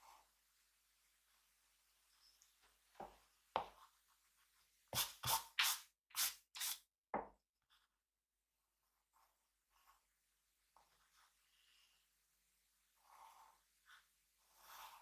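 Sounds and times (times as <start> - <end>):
drawing strokes on paper: 8.7 - 12.1, 12.8 - 15.0.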